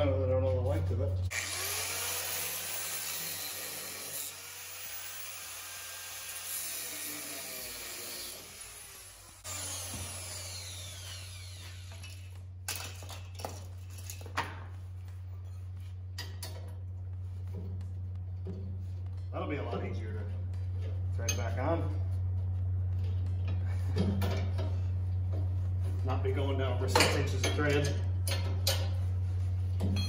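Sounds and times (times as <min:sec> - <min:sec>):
power tool grinding steel: 0:01.3 - 0:12.3.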